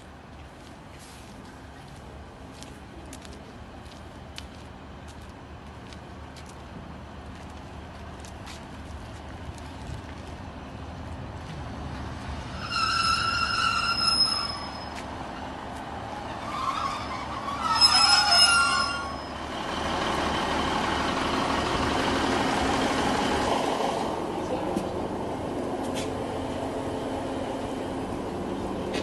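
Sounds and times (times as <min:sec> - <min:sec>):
train brakes squealing: 0:12.5 - 0:15.5, 0:16.2 - 0:19.5.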